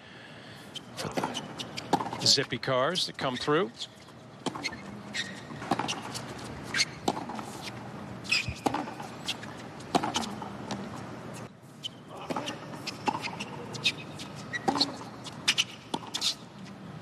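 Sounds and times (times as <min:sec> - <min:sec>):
tennis ball bouncing: 0:00.7 - 0:02.3, 0:04.4 - 0:11.4, 0:12.2 - 0:16.4
tennis ball hit by racquet: 0:01.0 - 0:02.3, 0:05.5 - 0:07.7, 0:08.3 - 0:11.0, 0:12.2 - 0:16.4.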